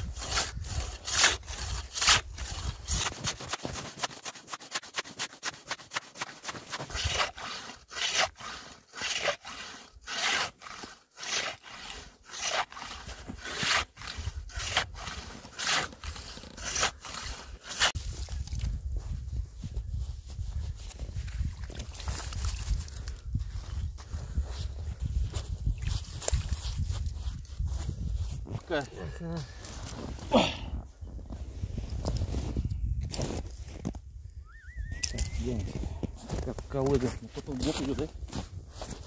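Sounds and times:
hand saw cutting ice: 0:00.0 - 0:18.0.

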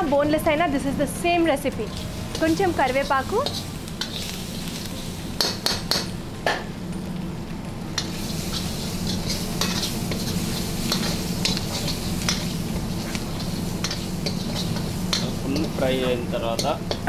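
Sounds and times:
chicken sizzling in oil: 0:00.7 - 0:17.0.

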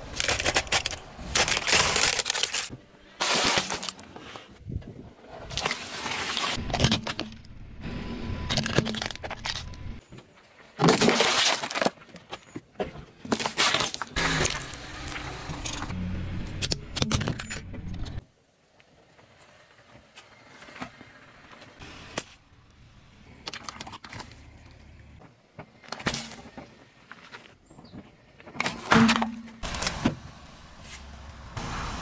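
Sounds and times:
tyre crushing objects: 0:00.1 - 0:04.4
low tyre rumble: 0:14.2 - 0:18.2.

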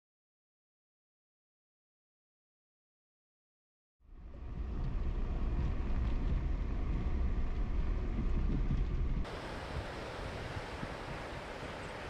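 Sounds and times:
car engine and tyre rumble: 0:04.0 - 0:12.0
wind buffeting microphone: 0:04.2 - 0:12.0.

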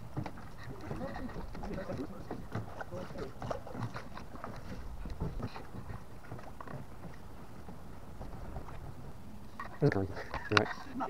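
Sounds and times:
oars knocking and splashing: 0:00.0 - 0:11.0.

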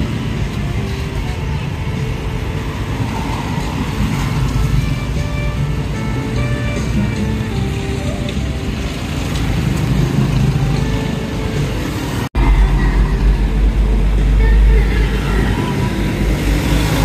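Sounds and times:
road traffic: 0:00.0 - 0:17.0
strong low rumble: 0:12.4 - 0:17.0.

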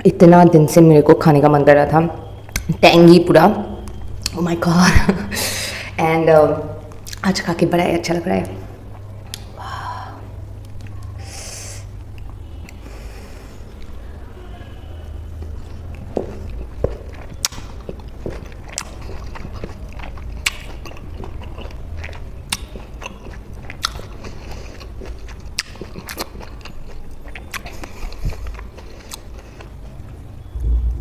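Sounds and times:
wet mouth clicks and smacks: 0:02.5 - 0:02.7, 0:20.4 - 0:21.0
chewing juicy fruit: 0:15.2 - 0:30.7.

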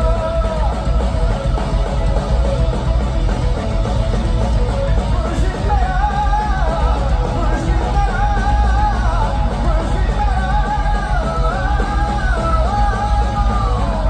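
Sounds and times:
rock band playing loudly: 0:00.0 - 0:14.0
sliding lead melody: 0:00.0 - 0:14.0.

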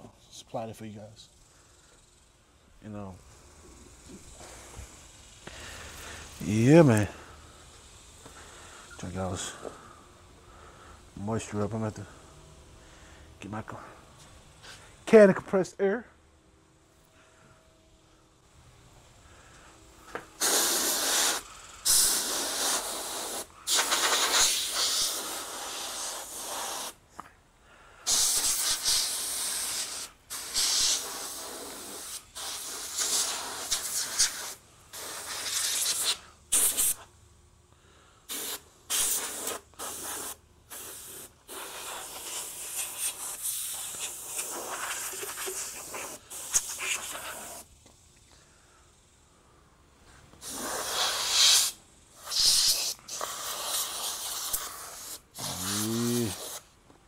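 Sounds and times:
compressed air spraying: 0:03.0 - 0:12.3, 0:19.4 - 0:27.1, 0:28.0 - 0:37.2, 0:38.2 - 0:48.2, 0:50.1 - 0:56.8.

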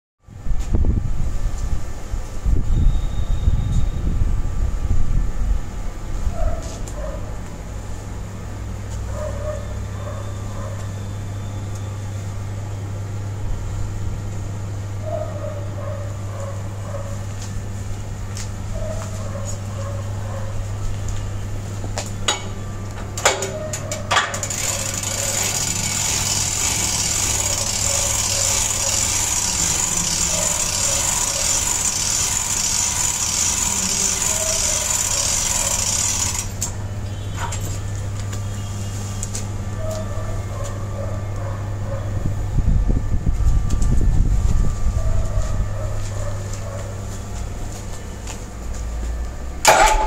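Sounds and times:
steady low hum: 0:00.2 - 0:50.0
hand crank ratcheting clatter: 0:24.1 - 0:36.7.

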